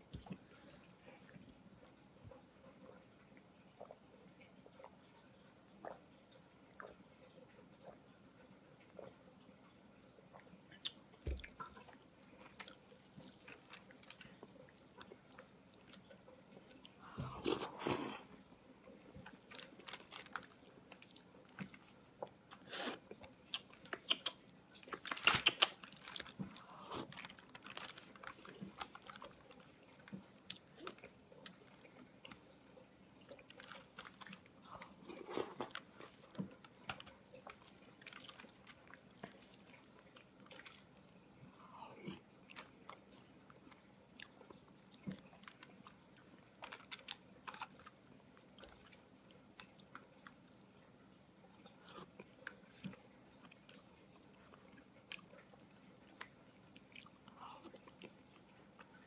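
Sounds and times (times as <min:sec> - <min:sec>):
wet chewing: 0:10.3 - 0:50.6
sharp mouth clicks: 0:23.5 - 0:25.7.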